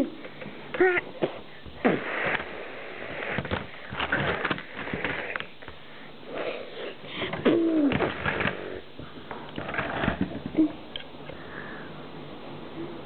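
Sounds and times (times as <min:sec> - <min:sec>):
person sniffing breathily: 0:06.2 - 0:07.8.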